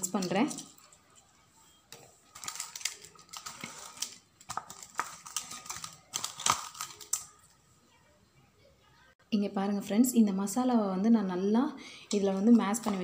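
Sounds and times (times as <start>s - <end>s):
hands mixing fish in a bowl: 1.9s - 7.3s.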